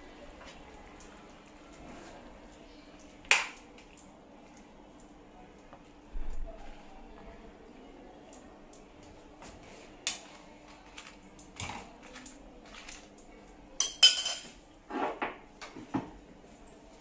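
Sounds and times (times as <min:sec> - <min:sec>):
metal utensils clinking: 0:13.8 - 0:14.6.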